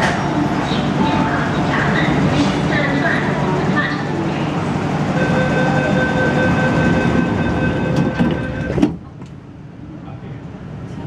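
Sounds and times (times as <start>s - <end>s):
platform noise: 0.0s - 9.2s
electronic warning tone: 5.0s - 8.9s
train doors sliding shut: 6.8s - 9.4s.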